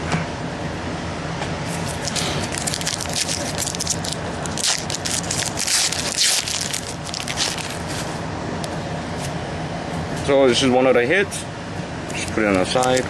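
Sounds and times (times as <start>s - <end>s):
plastic wrapper crinkling: 1.7s - 8.1s, 12.6s - 13.0s.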